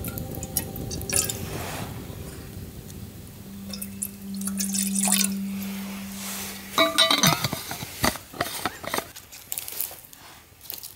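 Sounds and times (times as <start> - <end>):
water pouring into metal pot: 0.0 - 2.5, 3.5 - 8.0
low steady tone: 0.0 - 8.4.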